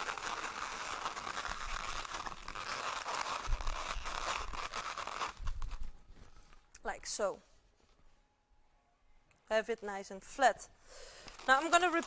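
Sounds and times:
balloons rubbing and crackling: 0.0s - 6.7s, 11.2s - 12.0s.

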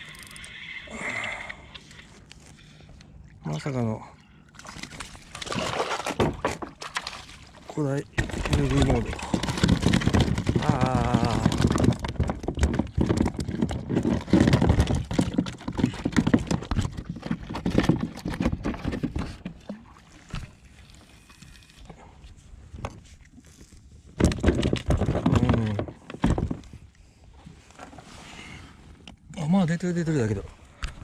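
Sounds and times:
knocking and clattering on kayak deck: 6.0s - 7.0s, 8.2s - 19.8s, 24.2s - 26.8s.

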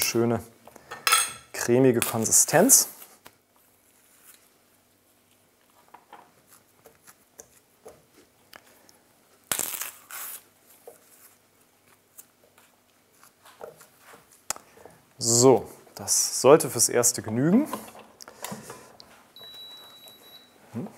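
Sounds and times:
banana peel tearing: 9.3s - 10.8s.

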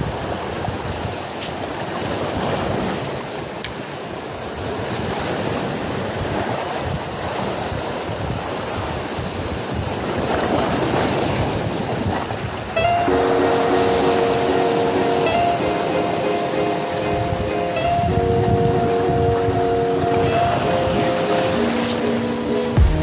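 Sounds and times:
sea waves breaking on rocks: 0.0s - 12.8s.

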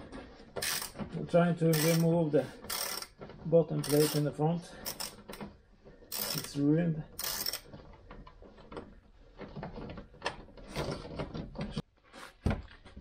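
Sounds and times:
plastic fasteners clicking and rattling: 0.5s - 11.8s.

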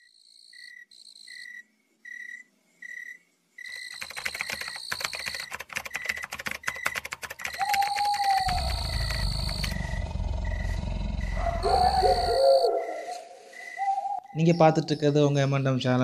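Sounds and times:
keyboard typing clicks: 3.7s - 9.9s
short chirping pulses: 3.7s - 14.7s
loud low rumble: 8.5s - 12.2s.

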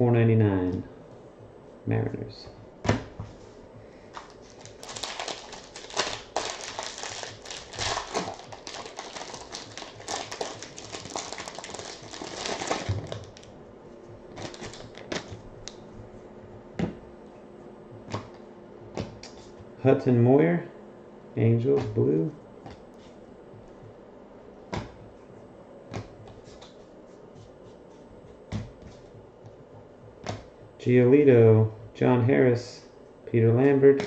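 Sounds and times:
foil wrapper crinkling and tearing: 4.2s - 13.5s, 14.4s - 15.3s.

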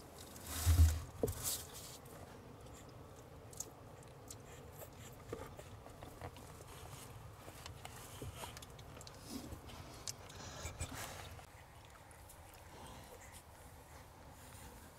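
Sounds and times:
low thump with rustle: 0.5s - 1.6s
puppies suckling: 2.6s - 14.9s.

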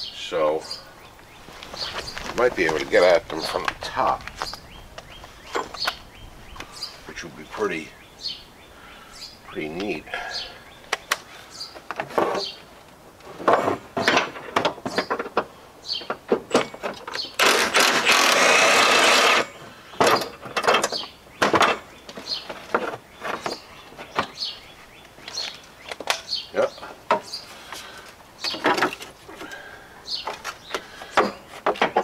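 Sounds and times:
metal handling noises: 1.5s - 6.0s, 10.8s - 17.8s, 19.3s - 24.4s, 25.1s - 32.0s.

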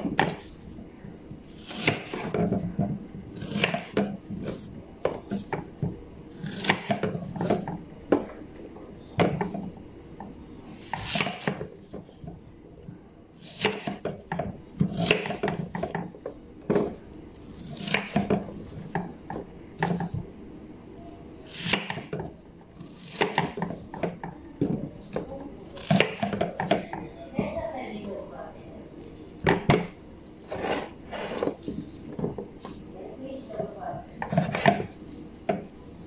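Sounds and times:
knife cutting onion on board: 0.0s - 0.6s, 1.5s - 8.3s, 10.8s - 12.4s, 13.4s - 16.1s, 17.6s - 19.2s, 21.5s - 27.0s, 34.2s - 35.6s.

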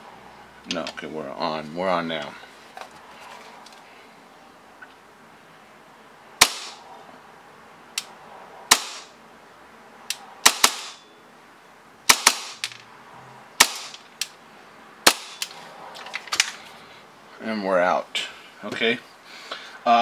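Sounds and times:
airsoft pistol shots: 6.4s - 6.8s, 8.7s - 9.1s, 10.4s - 11.0s, 12.1s - 12.7s, 13.6s - 14.0s, 15.0s - 15.4s.

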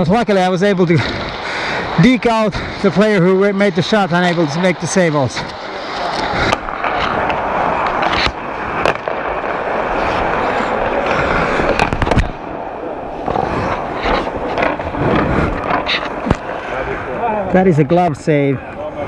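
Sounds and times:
skate blades scraping ice: 0.6s - 17.0s
hockey sticks and puck clacking: 2.9s - 16.5s.

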